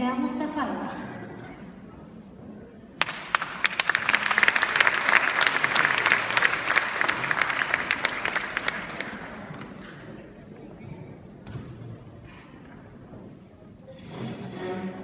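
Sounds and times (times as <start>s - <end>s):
audience applauding: 3.0s - 10.0s.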